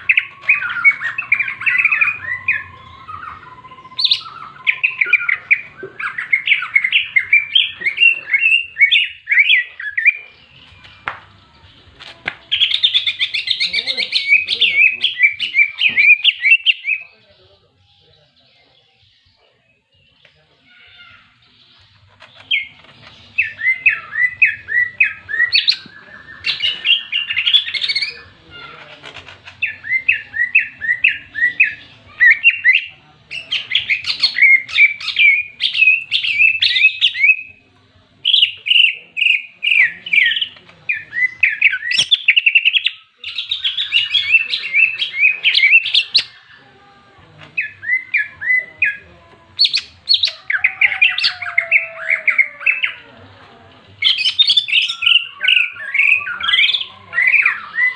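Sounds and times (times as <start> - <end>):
bird singing sharp chirps: 0.0 - 11.1.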